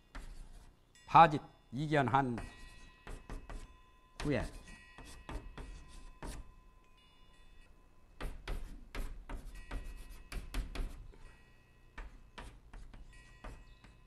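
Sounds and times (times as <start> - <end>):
chalk tapping and scraping on blackboard: 0.0 - 0.7, 2.2 - 6.5, 8.2 - 11.3, 12.0 - 14.0.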